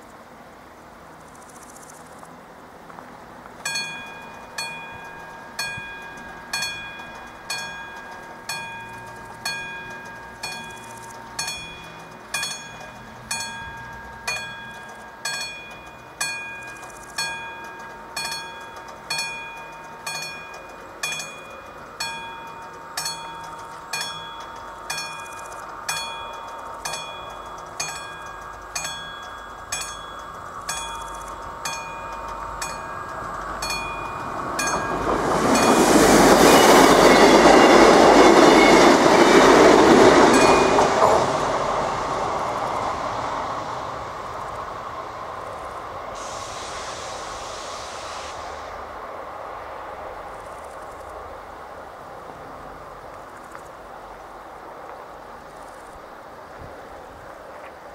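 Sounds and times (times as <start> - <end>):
background hiss: 0.0 - 57.9
level crossing warning bell: 3.5 - 43.7.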